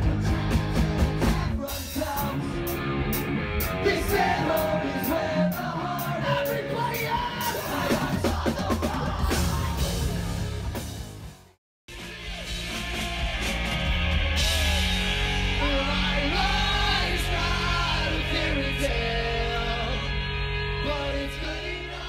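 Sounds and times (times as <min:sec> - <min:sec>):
electric guitar: 0:00.0 - 0:08.2, 0:09.0 - 0:22.0
live rock band playing: 0:00.0 - 0:22.0
singer yelling and singing: 0:03.6 - 0:10.3, 0:12.0 - 0:22.0.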